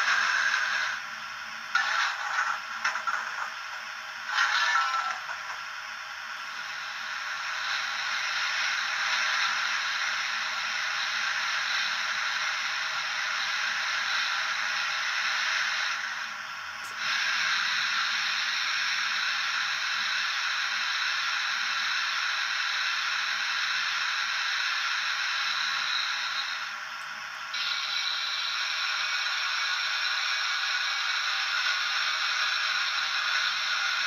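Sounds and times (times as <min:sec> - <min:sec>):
steam blowdown hiss: 0:00.0 - 0:34.0
safety valve hissing: 0:16.8 - 0:34.0.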